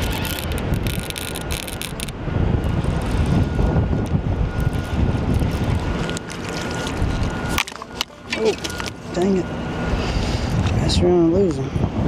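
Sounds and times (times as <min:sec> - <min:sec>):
wind buffeting microphone: 0:00.0 - 0:07.6, 0:08.8 - 0:12.0
faint high whine: 0:03.1 - 0:11.8.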